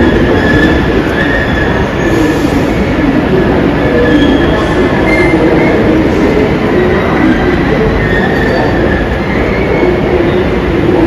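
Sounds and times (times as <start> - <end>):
electric train rumbling on rails: 0.0 - 11.0
high-pitched wheel squeal: 7.9 - 9.9.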